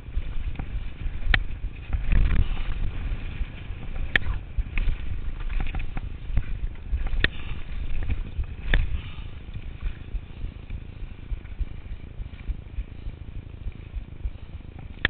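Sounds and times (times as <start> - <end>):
bike knocking on bumps: 0.0 - 15.0
mountain bike rattling on dirt: 0.0 - 15.0
wind rumble on microphone: 0.0 - 15.0.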